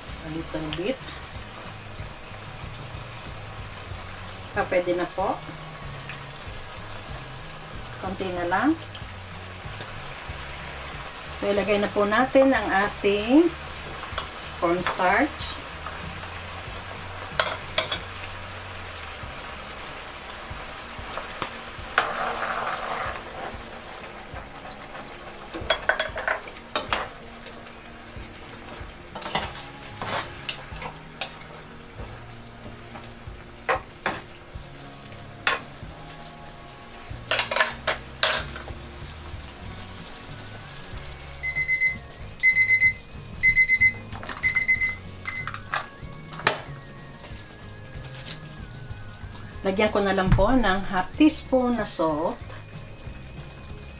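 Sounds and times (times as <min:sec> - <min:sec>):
sauce simmering and sizzling: 0:00.0 - 0:53.9
spoon clinking against pan: 0:17.4 - 0:18.1.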